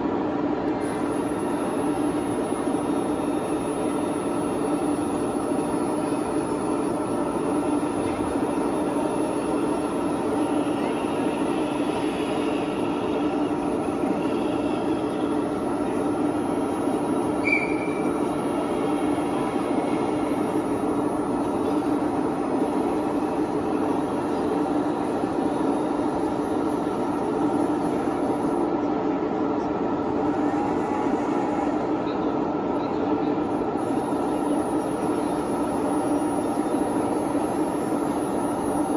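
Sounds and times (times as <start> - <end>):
brief squeak: 17.4 - 18.0.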